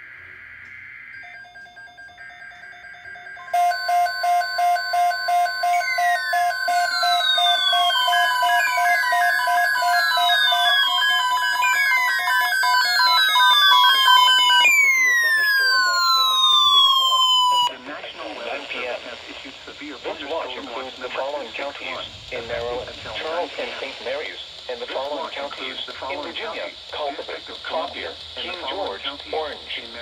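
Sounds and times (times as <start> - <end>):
pulsed alarm beep: 0.0 - 17.8
steady alarm tone: 0.0 - 18.9
beeps at other pitches: 0.7 - 17.8.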